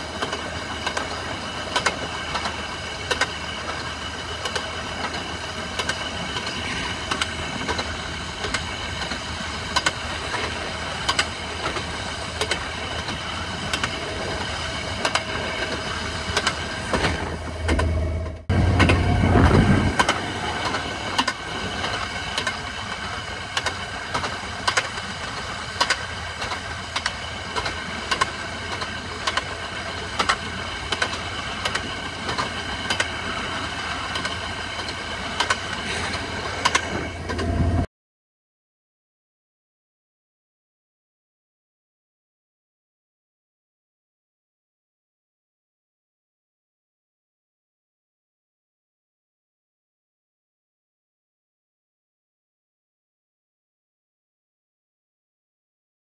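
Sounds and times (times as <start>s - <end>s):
rail joint clicks: 0.0s - 37.9s
low rumble: 17.1s - 21.2s.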